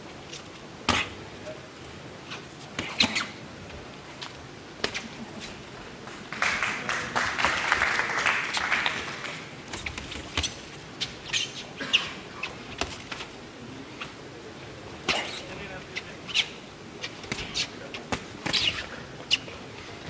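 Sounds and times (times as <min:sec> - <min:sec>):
crowd cheering: 0:06.1 - 0:09.5
brief squeaks: 0:11.2 - 0:12.6.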